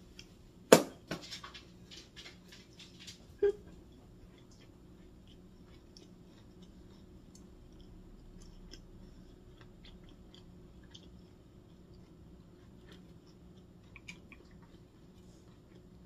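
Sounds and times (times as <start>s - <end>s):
low steady hum: 0.0s - 16.0s
chewing with mouth closed: 3.4s - 16.0s.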